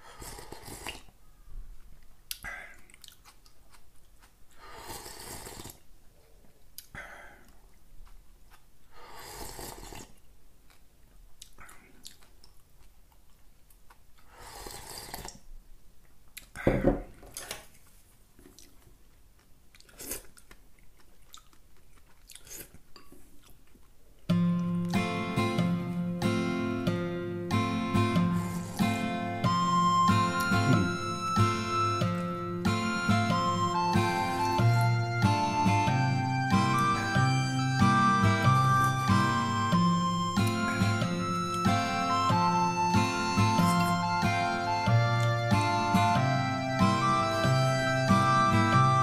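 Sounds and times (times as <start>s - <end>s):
person slurping soup: 0.0s - 1.1s, 4.6s - 5.8s, 9.0s - 10.2s, 14.3s - 15.4s, 28.3s - 29.0s
thump: 16.6s - 17.1s.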